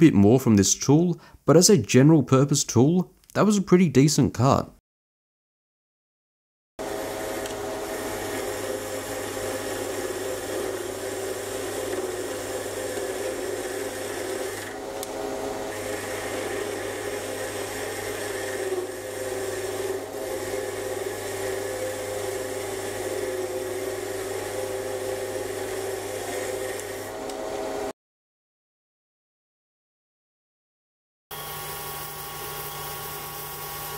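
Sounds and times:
lathe cutting steel: 6.8s - 27.9s
motor hum: 6.8s - 27.9s.

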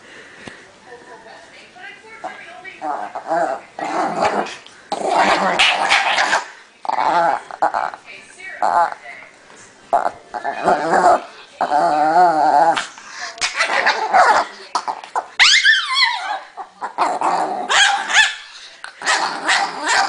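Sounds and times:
small dog growling: 2.8s - 8.0s, 9.9s - 13.0s, 15.9s - 18.1s
small dog yelping: 15.4s - 16.5s
small dog barking: 17.7s - 18.4s.

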